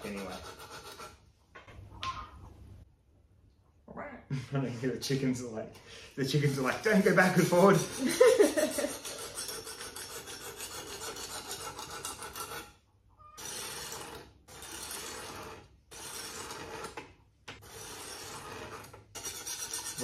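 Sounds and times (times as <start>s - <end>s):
sharpening stone rasping on blade: 0.0s - 1.2s, 6.3s - 12.8s, 13.4s - 17.0s, 17.6s - 20.0s.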